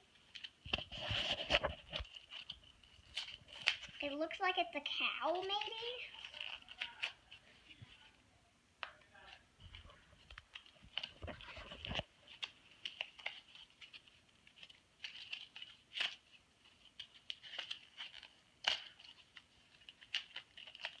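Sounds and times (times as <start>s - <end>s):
package being torn open: 10.6s - 21.0s
sharp snaps of packaging: 17.0s - 19.2s.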